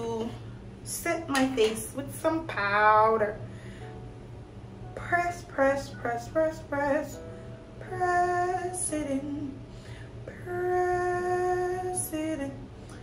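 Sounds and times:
woman singing long notes: 0:07.8 - 0:09.6, 0:10.3 - 0:12.6.

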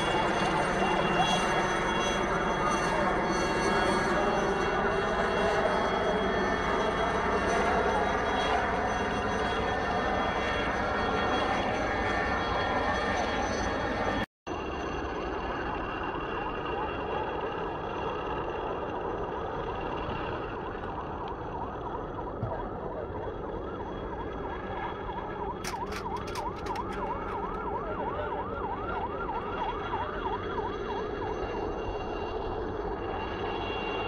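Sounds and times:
siren wailing: 0:00.0 - 0:34.0
sharp clicks: 0:25.6 - 0:27.6.

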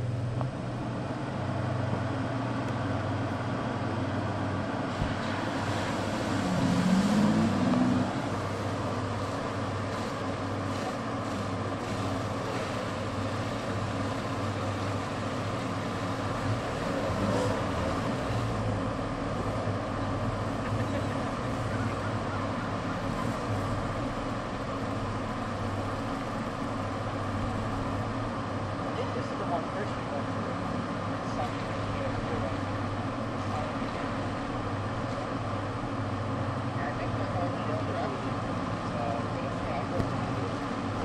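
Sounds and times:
car driving through water: 0:00.0 - 0:41.0
engine running at low revs: 0:00.0 - 0:41.0.

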